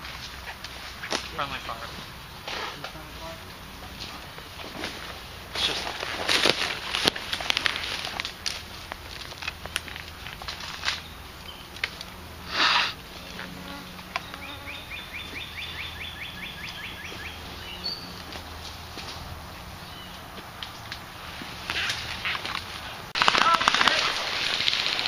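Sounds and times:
twigs and leaves crackling: 0:00.0 - 0:25.0
rapid trill of rising chirps: 0:13.8 - 0:18.2.

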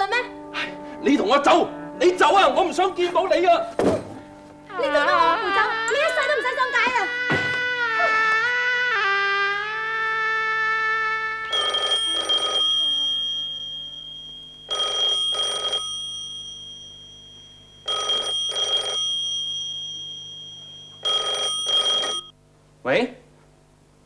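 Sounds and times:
held music chord: 0:00.0 - 0:14.7
telephone bell ringing: 0:11.5 - 0:22.3.

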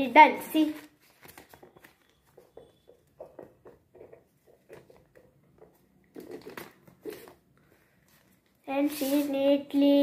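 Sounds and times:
paper rustling being folded: 0:00.6 - 0:02.7.

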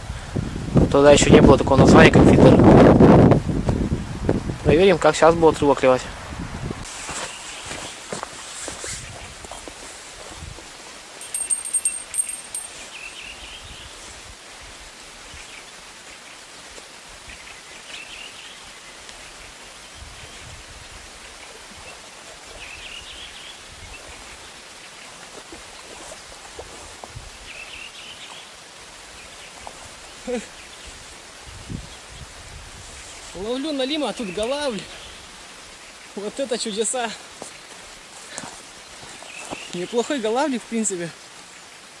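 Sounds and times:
steady outdoor hiss: 0:00.0 - 0:42.0
small bell jingling: 0:11.2 - 0:13.0.

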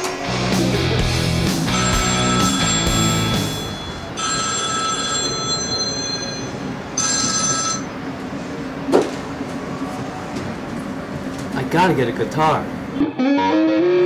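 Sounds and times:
phone ringing: 0:01.7 - 0:08.1.

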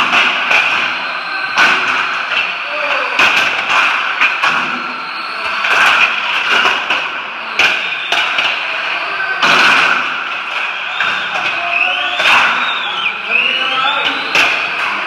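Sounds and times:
toy cars knocking into fence: 0:09.3 - 0:12.8, 0:13.7 - 0:15.0.

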